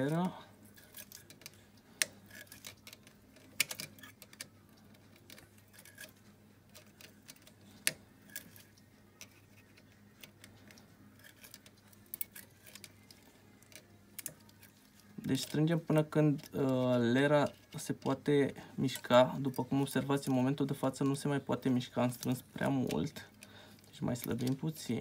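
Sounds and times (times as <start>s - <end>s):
pliers clicking on metal: 0.2s - 16.8s.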